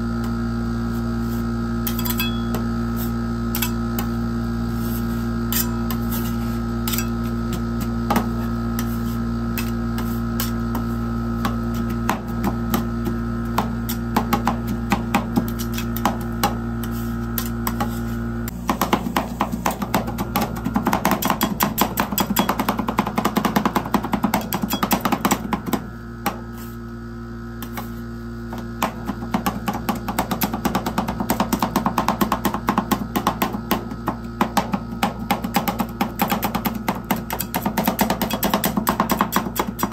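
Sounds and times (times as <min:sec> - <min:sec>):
machine hum: 0:00.0 - 0:31.2
spatulas scraping metal plate: 0:04.7 - 0:10.8.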